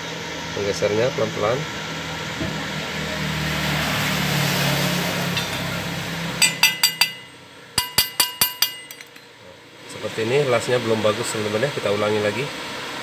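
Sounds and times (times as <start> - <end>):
engine-like drone with hiss: 0.0 - 6.4, 9.3 - 13.0
metallic hammer taps: 6.4 - 9.2.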